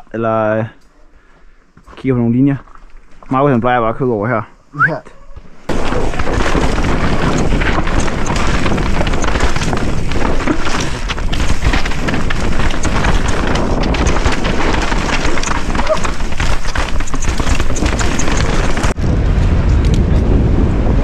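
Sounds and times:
bike knocks and clicks: 0:05.7 - 0:19.0
tyres crunching over gravel: 0:05.7 - 0:19.0
wind buffeting microphone: 0:05.7 - 0:21.0.

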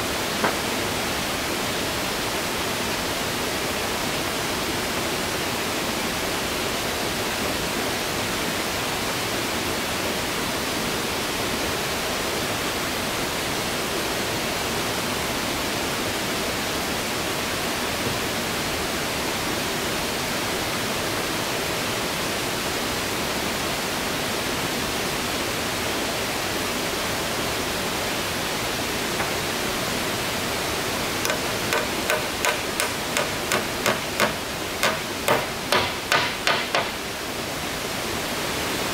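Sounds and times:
hammer blows on wood: 0:31.3 - 0:37.0.

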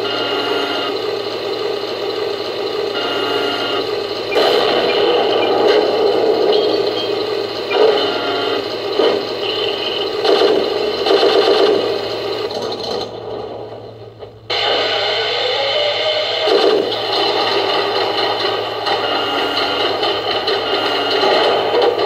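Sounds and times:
simulated engine through tinny speaker: 0:00.0 - 0:22.0.

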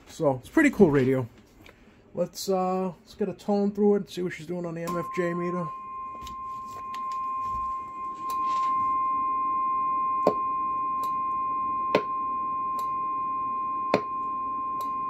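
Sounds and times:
steady test tone: 0:04.6 - 0:15.0.

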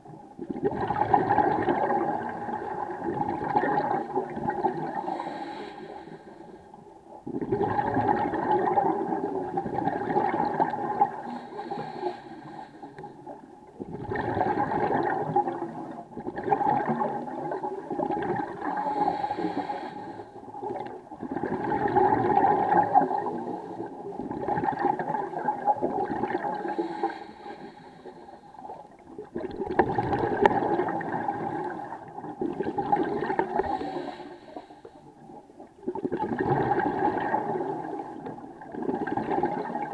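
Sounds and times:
exhaled air bubbling underwater: 0:00.0 - 0:39.9
regulator inhalations: 0:05.0 - 0:06.6, 0:11.2 - 0:13.3, 0:18.7 - 0:20.4, 0:26.6 - 0:28.8, 0:33.6 - 0:35.2.

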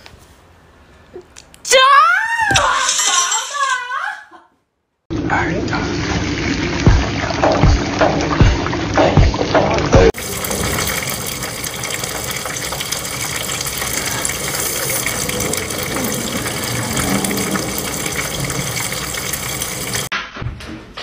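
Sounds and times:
food sizzling in hot oil: 0:10.2 - 0:20.1.

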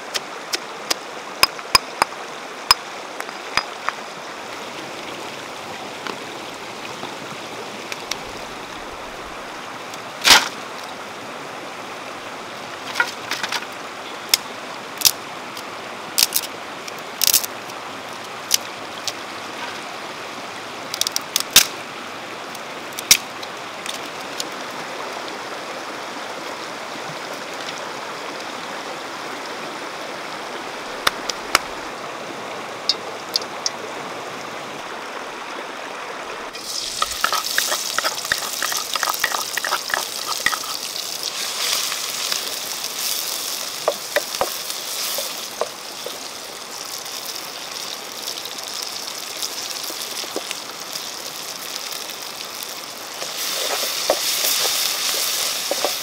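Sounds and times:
river water running: 0:00.0 - 0:56.0
dry sticks snapping: 0:17.2 - 0:17.5
stones knocking on rock: 0:36.7 - 0:40.8.

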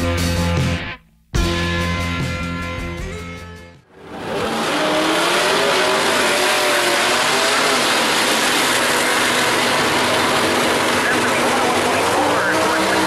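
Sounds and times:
music: 0:00.0 - 0:03.9
car engine revving high: 0:03.9 - 0:13.0
tires squealing: 0:04.0 - 0:13.0.

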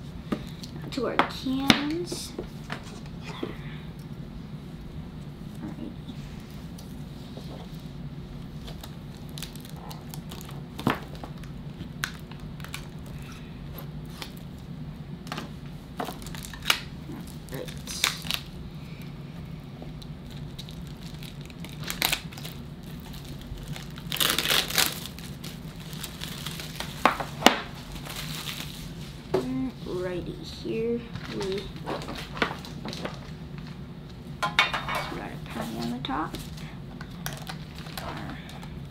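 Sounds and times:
plastic wrapping crinkling and tearing: 0:08.5 - 0:14.7, 0:16.0 - 0:18.6, 0:19.9 - 0:29.2, 0:31.1 - 0:33.8, 0:35.6 - 0:38.9.

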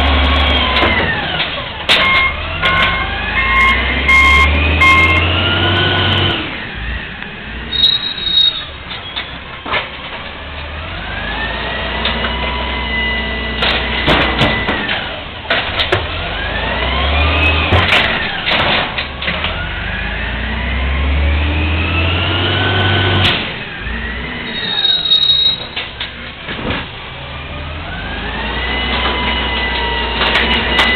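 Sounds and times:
hydraulic whine: 0:00.0 - 0:09.5
garbage truck engine revving: 0:00.0 - 0:30.9
sharp bangs and clatters: 0:13.5 - 0:16.4, 0:17.6 - 0:19.7.

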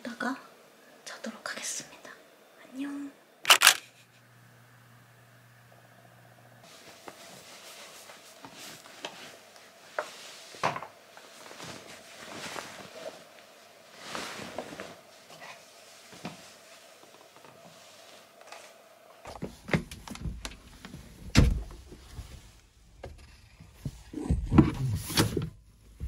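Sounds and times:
faint steady hum: 0:00.0 - 0:26.0
fabric rustling and swishing: 0:06.6 - 0:18.4.

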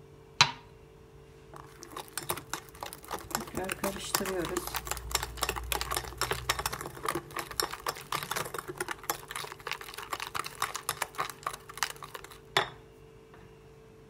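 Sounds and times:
batter sloshing: 0:01.5 - 0:12.7
whisk clicking against glass bowl: 0:01.6 - 0:12.6.

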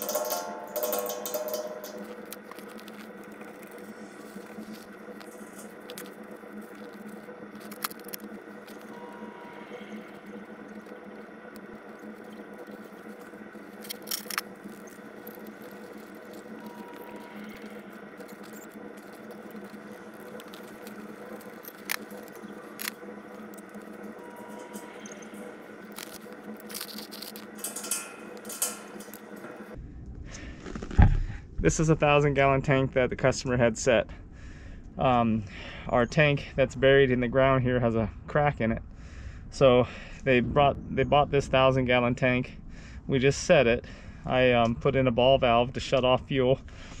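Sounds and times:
faint clicks and rustles: 0:00.0 - 0:29.8
hand tool scraping and ticking: 0:00.0 - 0:29.8
steady low hum: 0:00.0 - 0:47.0.

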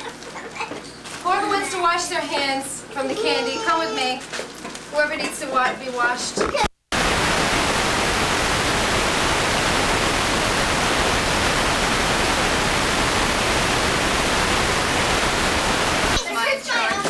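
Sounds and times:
videotape static hiss: 0:06.4 - 0:16.6.

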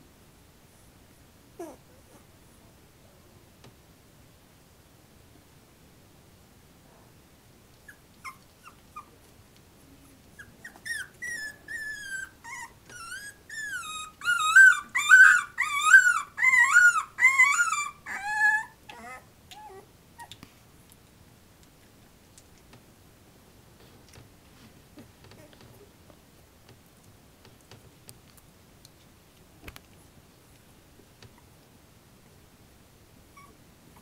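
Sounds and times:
faint puppy squeaks: 0:01.6 - 0:02.3, 0:07.8 - 0:09.2, 0:10.0 - 0:20.4, 0:33.3 - 0:34.0
puppy whining and howling: 0:01.6 - 0:02.3, 0:07.8 - 0:09.1, 0:10.4 - 0:20.3, 0:33.3 - 0:33.6.

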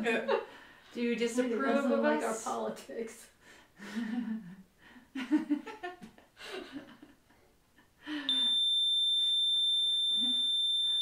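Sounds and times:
high-pitched alarm tone: 0:08.3 - 0:11.0.

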